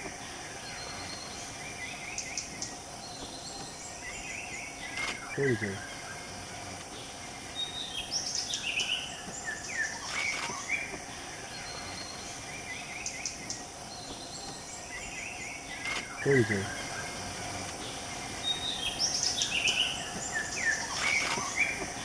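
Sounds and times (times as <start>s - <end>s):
insect drone: 0.0s - 22.0s
bird chirps and whistled calls: 7.6s - 10.9s, 18.4s - 21.9s.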